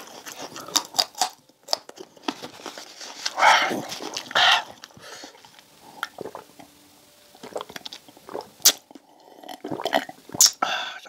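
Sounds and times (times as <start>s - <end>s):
sipping and swallowing: 3.6s - 6.6s, 7.4s - 10.7s.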